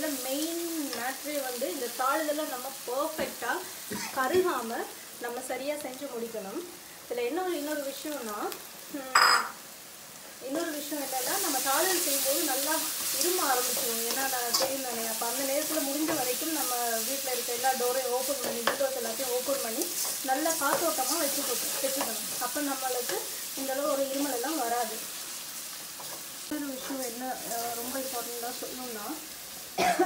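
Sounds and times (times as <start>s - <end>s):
food sizzling in oil: 0.0s - 30.0s.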